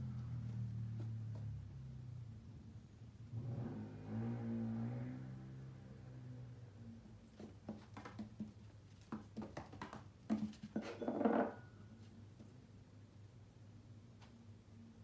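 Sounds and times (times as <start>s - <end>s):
kitten paws thumping on wood floor: 7.3s - 10.7s.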